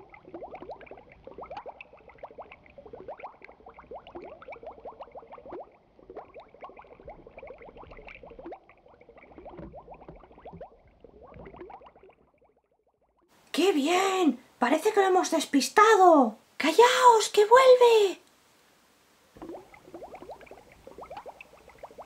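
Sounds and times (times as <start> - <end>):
underwater bubbling: 0.0 - 13.3, 19.3 - 22.0.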